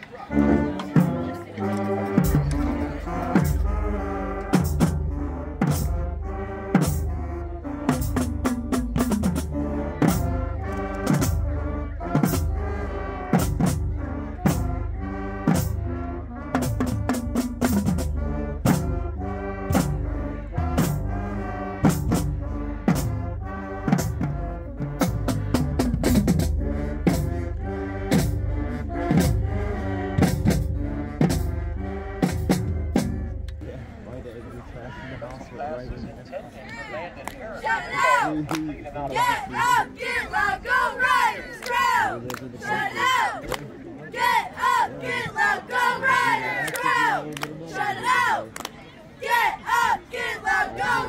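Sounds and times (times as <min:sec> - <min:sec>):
brass and saxophones: 0:00.0 - 0:36.2, 0:36.8 - 0:51.0
marching drumline: 0:00.3 - 0:33.5.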